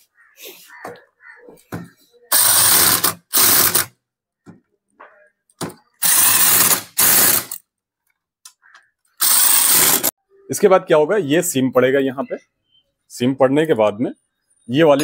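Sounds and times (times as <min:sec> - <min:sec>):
pneumatic wrench rattling: 0:02.3 - 0:03.9, 0:06.0 - 0:07.6, 0:09.2 - 0:10.1.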